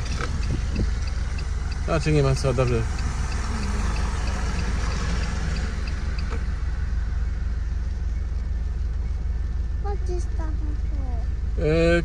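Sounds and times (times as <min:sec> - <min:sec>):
raindrop ticks: 0:00.0 - 0:06.8
low engine rumble: 0:00.0 - 0:12.0.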